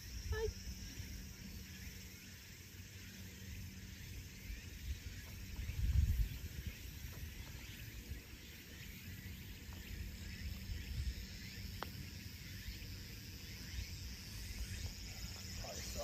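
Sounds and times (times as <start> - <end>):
insect chirring: 0.0 - 16.0
wind rumble on microphone: 4.5 - 8.3, 9.8 - 11.6.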